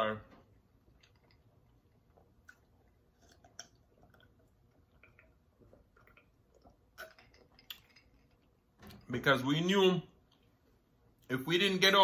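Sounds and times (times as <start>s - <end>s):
person swallowing and gulping: 0.5s - 9.0s.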